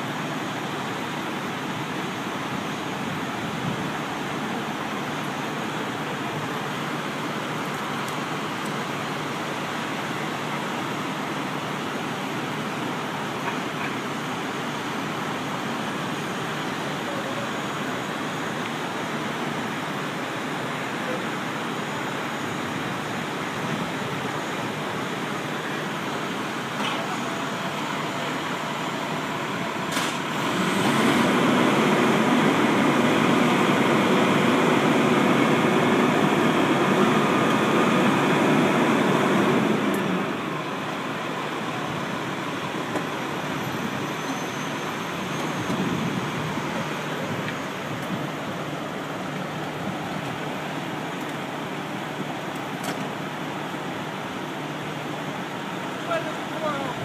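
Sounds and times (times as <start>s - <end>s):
fire truck engine running: 0.0s - 57.0s.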